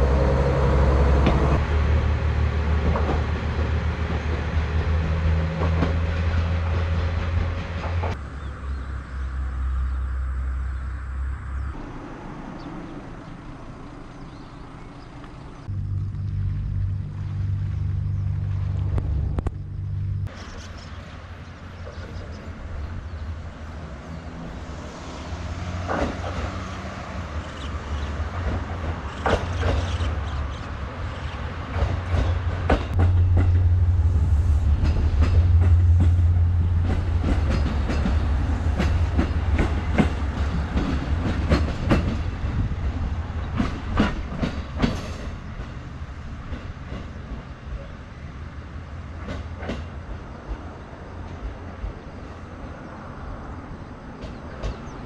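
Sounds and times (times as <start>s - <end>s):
diesel railcar engine rumble: 0.0s - 55.0s
wheels clicking over rail joints: 34.8s - 45.8s.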